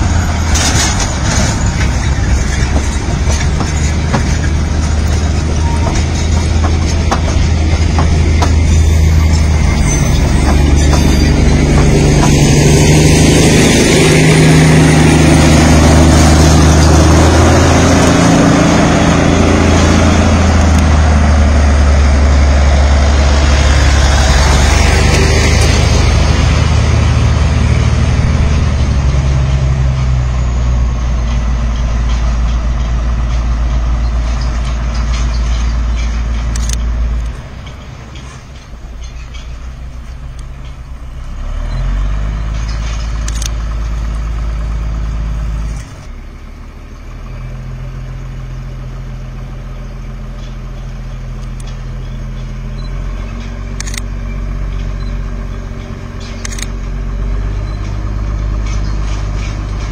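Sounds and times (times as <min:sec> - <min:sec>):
engine idling: 0:42.3 - 0:59.9.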